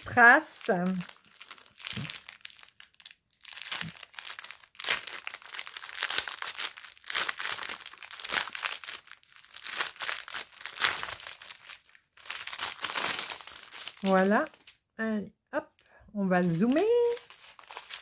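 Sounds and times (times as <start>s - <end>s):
plastic packaging crinkling: 0.0s - 14.8s, 15.7s - 18.0s.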